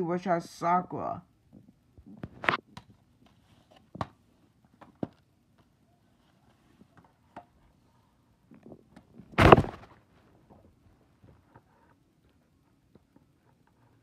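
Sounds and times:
loud dull thump: 0:09.4 - 0:09.9.

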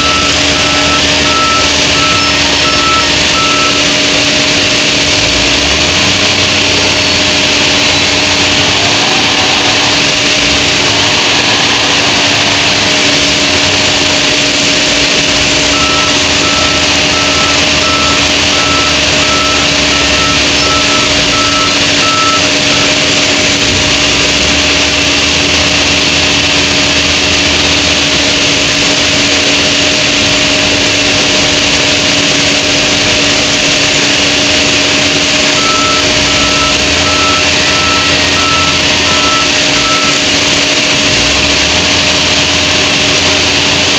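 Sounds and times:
reversing alarm beeps: 0:00.0 - 0:04.5, 0:11.8 - 0:24.8, 0:34.7 - 0:41.6
diesel engine running: 0:00.0 - 0:43.9
machine hum: 0:00.0 - 0:43.9.

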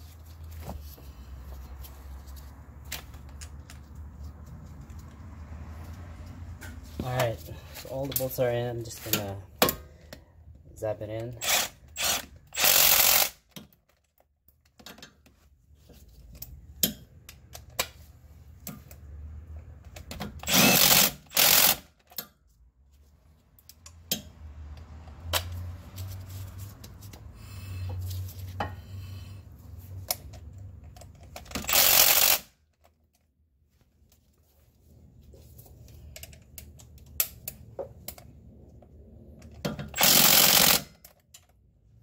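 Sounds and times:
impact wrench bursts: 0:11.4 - 0:13.5, 0:20.4 - 0:22.0, 0:31.5 - 0:32.6, 0:39.8 - 0:41.0.

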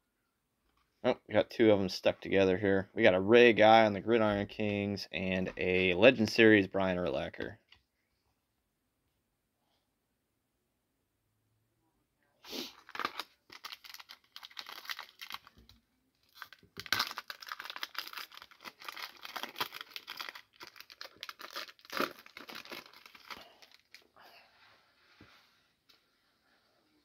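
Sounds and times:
foil wrapper tearing and crinkling: 0:12.7 - 0:15.7, 0:16.3 - 0:24.0
cards rustling: 0:16.3 - 0:24.1.

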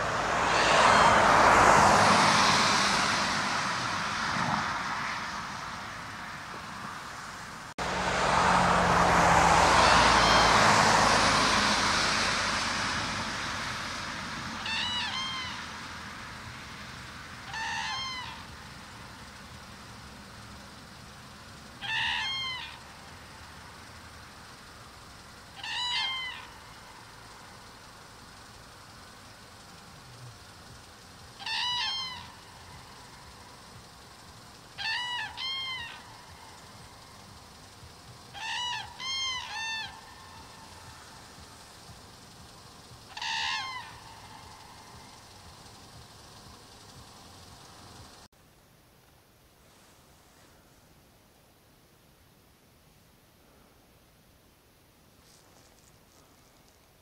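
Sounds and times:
cranes trumpeting calls: 0:00.0 - 0:07.1, 0:07.8 - 0:19.9, 0:20.5 - 0:48.3
broad rushing noise: 0:00.0 - 0:19.8, 0:28.7 - 0:48.3.

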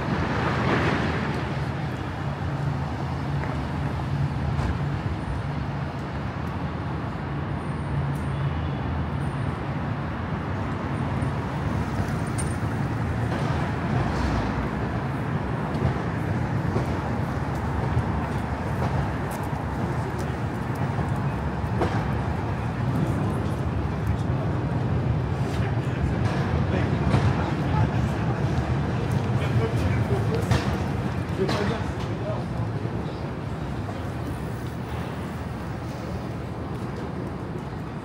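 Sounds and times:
passing cars: 0:00.0 - 0:38.0.

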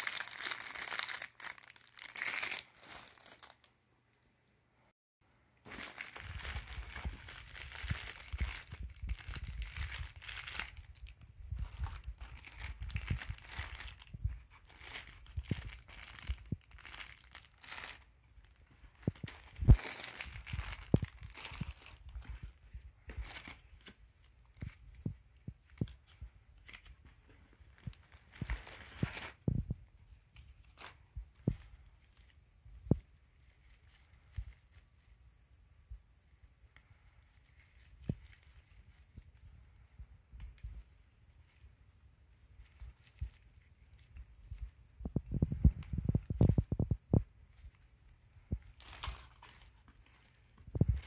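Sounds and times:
plastic packaging crinkling: 0:00.0 - 0:03.7, 0:05.6 - 0:29.6, 0:47.5 - 0:51.0.

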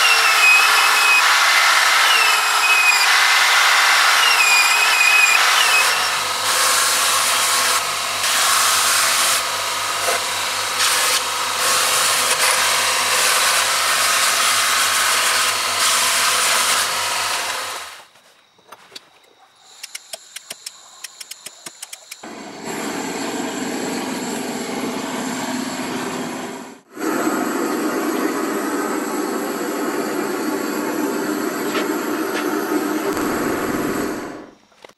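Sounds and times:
power sanding wood: 0:00.0 - 0:17.8
rapid clicks: 0:19.8 - 0:22.2
sander motor hum: 0:22.1 - 0:26.9.

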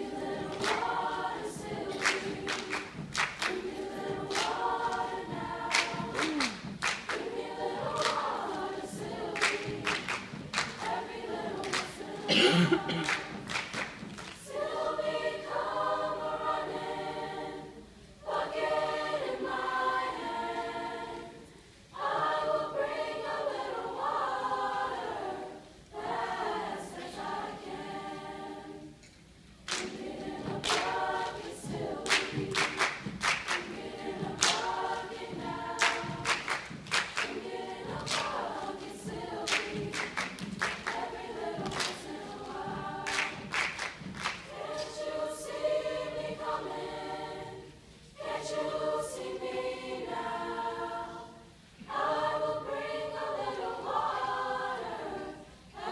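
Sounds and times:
choir singing a cappella: 0:00.0 - 0:55.9
sharp hand claps: 0:00.5 - 0:01.0, 0:01.9 - 0:07.4, 0:08.0 - 0:08.6, 0:09.4 - 0:11.0, 0:11.6 - 0:12.0, 0:12.8 - 0:14.5, 0:29.7 - 0:42.2, 0:43.0 - 0:45.0.

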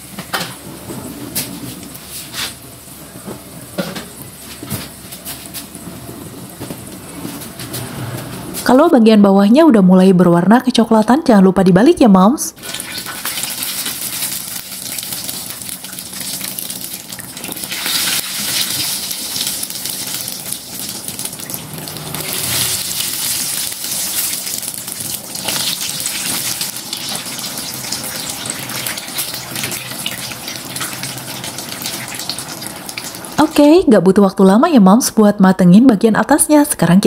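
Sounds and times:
deep-frying in hot oil sizzling: 0:00.0 - 0:07.8, 0:12.6 - 0:33.6.

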